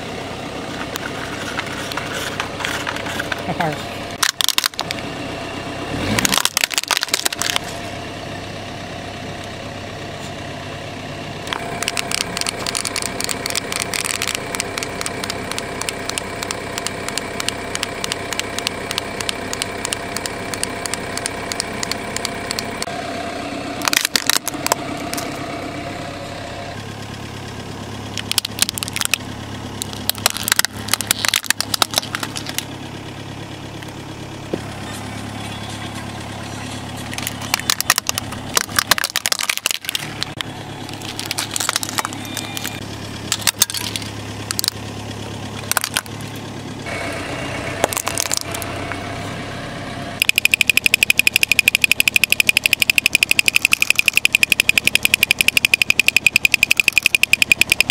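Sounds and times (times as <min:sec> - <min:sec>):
car engine idling: 0:00.0 - 0:57.9
plastic toys cracking under tyre: 0:04.2 - 0:05.0, 0:06.0 - 0:07.7, 0:11.4 - 0:22.9, 0:23.8 - 0:25.4, 0:28.2 - 0:29.2, 0:29.8 - 0:32.7, 0:37.1 - 0:44.8, 0:45.6 - 0:46.2, 0:47.8 - 0:48.7, 0:50.2 - 0:57.9
toy drums rattling: 0:11.5 - 0:22.9, 0:50.2 - 0:57.9.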